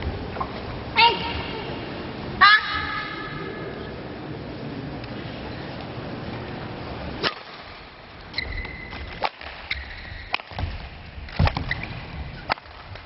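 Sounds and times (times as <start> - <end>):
shoes squeaking on floor: 8.3 - 10.3, 11.6 - 12.5.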